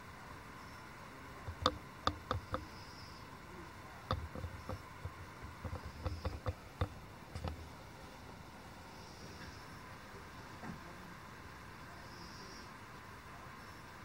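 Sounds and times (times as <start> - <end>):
steady hiss: 0.0 - 14.0
sharp clicks and pops: 1.5 - 2.7, 4.1 - 7.6.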